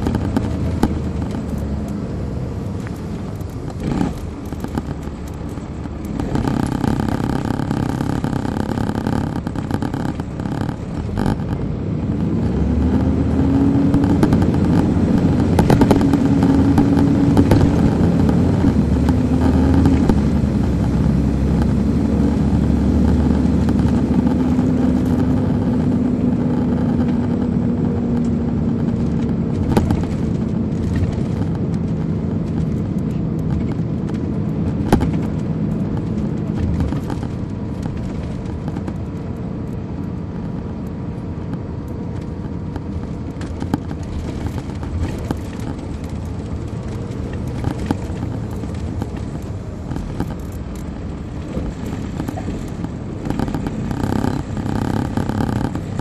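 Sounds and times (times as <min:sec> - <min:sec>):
diesel coach engine pulling: 0:00.0 - 0:56.0
knocks and rattles: 0:12.4 - 0:39.2, 0:42.1 - 0:56.0.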